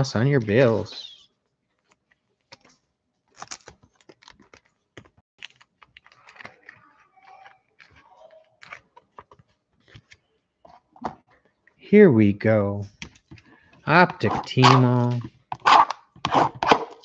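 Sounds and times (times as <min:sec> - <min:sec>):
hands handling small objects: 0:01.7 - 0:11.5.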